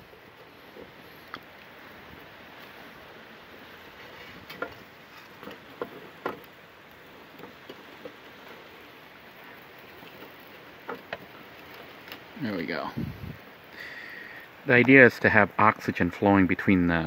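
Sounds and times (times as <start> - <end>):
faint steady hiss: 0.0 - 17.0
sticks knocking on metal stove: 5.4 - 6.5.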